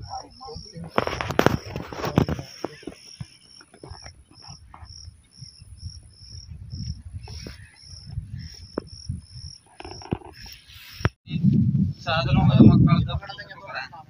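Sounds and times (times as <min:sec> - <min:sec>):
cricket chirping: 0:00.0 - 0:11.2.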